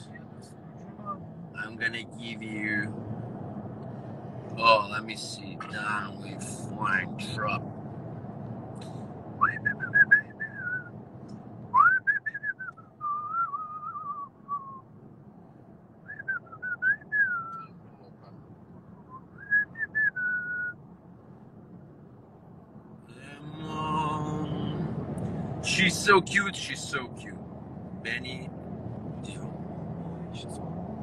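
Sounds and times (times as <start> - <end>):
car cabin road noise: 0.0 - 31.0
man whistling a tune: 9.4 - 10.9, 11.8 - 14.8, 16.1 - 17.7, 19.1 - 20.7.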